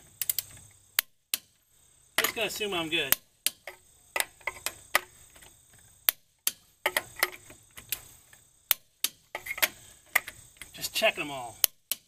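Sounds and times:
torque wrench clicking: 0:00.2 - 0:01.5.

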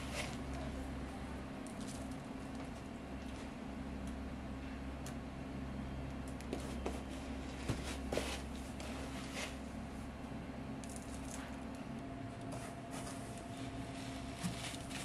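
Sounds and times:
kitchen hum: 0:06.4 - 0:15.0
bread crumbs rustling and crunching: 0:12.9 - 0:15.0.

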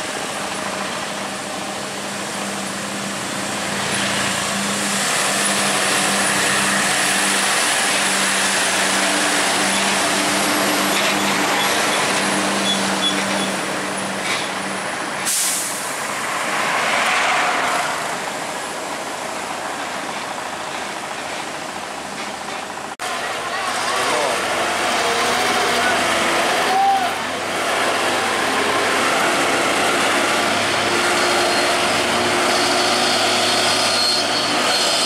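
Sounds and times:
road noise: 0:00.0 - 0:35.0
truck diesel engine pulling: 0:00.0 - 0:35.0
air brake hiss: 0:15.2 - 0:16.0.

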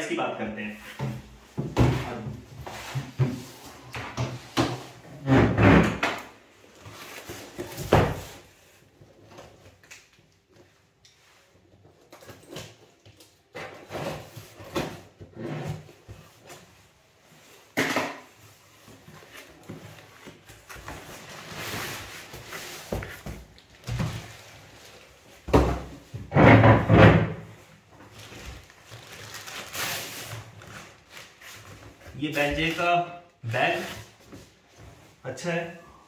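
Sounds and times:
packing tape ripping: 0:28.6 - 0:31.4.

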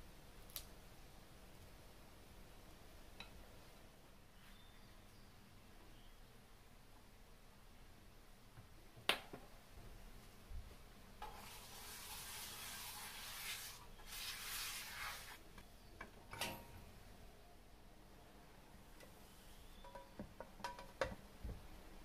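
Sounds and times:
frying pan hissing: 0:11.2 - 0:15.5.

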